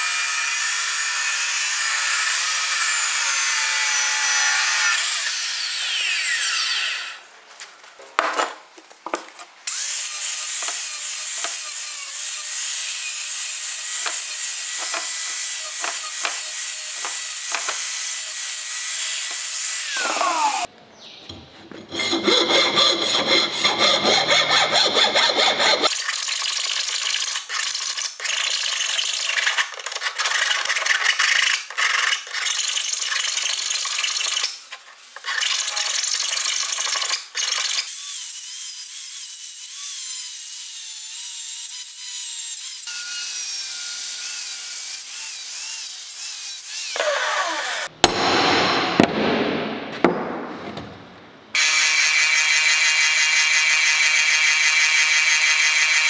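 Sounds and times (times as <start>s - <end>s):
hand file scraping steel: 21.7s - 26.0s.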